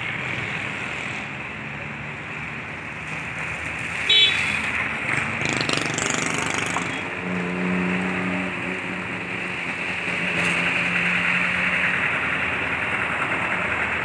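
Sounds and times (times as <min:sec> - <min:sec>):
outdoor traffic noise: 0:00.0 - 0:14.0
high-pitched vehicle horn toot: 0:04.1 - 0:04.6.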